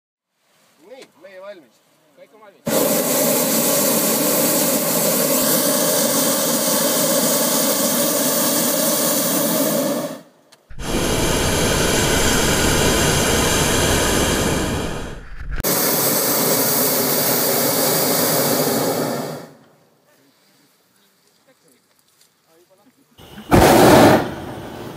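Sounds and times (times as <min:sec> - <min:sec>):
propane burners roaring: 0:02.7 - 0:19.7, 0:23.2 - 0:24.9.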